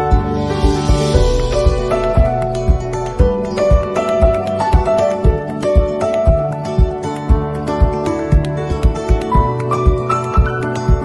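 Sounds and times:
music with low thumping beat: 0.0s - 11.0s.

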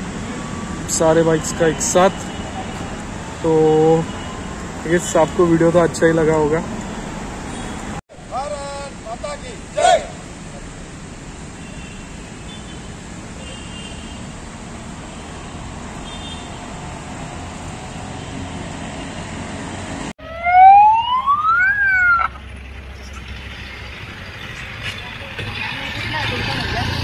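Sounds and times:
outdoor background noise: 0.0s - 27.0s
fire siren wailing: 20.2s - 22.4s.

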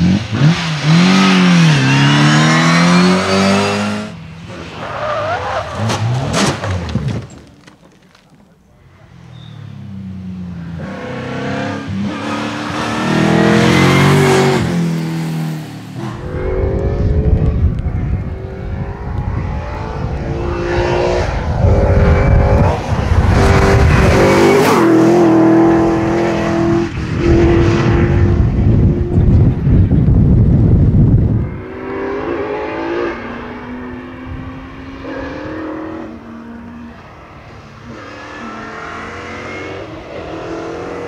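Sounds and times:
rally car engine revving: 0.0s - 7.2s, 10.7s - 30.2s.

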